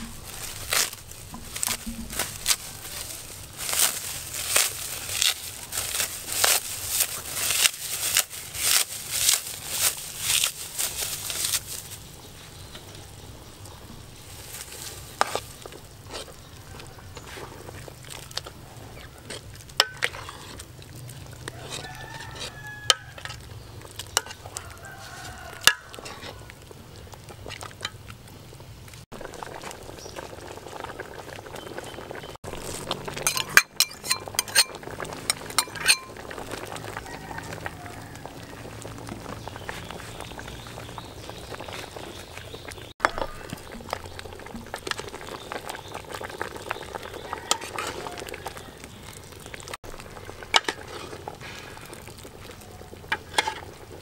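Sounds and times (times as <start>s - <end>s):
soup simmering: 12.0s - 54.0s.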